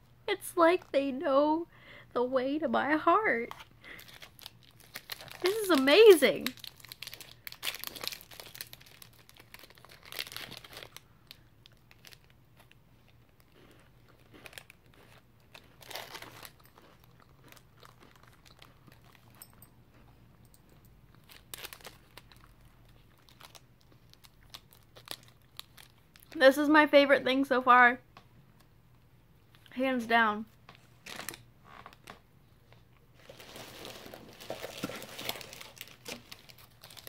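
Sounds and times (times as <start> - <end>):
plastic wrapper crinkling: 3.5 - 19.4, 21.1 - 26.4, 31.0 - 32.2, 33.1 - 37.0.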